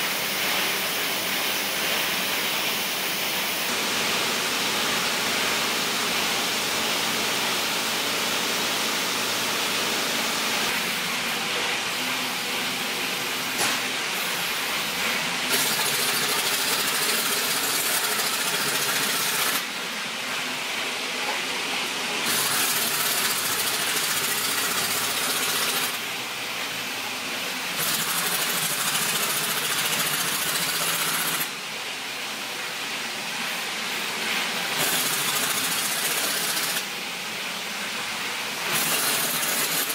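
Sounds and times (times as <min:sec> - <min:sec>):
pneumatic wrench running: 0:15.5 - 0:19.7, 0:22.2 - 0:26.1, 0:27.7 - 0:31.6, 0:34.7 - 0:36.9, 0:38.6 - 0:39.9.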